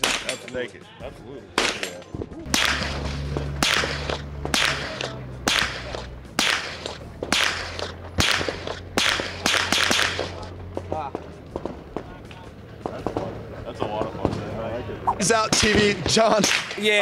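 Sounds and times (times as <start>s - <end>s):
suppressed carbine gunshots: 1.6s - 10.5s.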